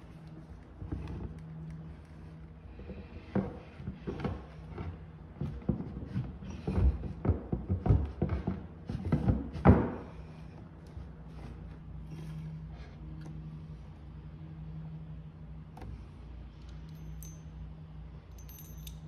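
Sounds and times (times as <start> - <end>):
wooden knocks and thumps: 2.8 - 10.2.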